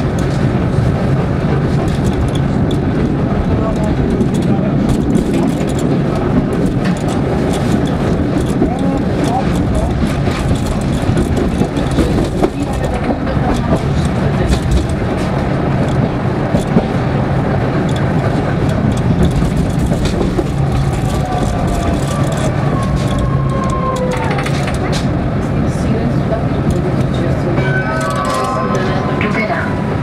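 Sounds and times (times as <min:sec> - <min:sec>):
tram wheels rumbling on rail: 0:00.0 - 0:30.0
clicks over rail joints: 0:01.5 - 0:25.2.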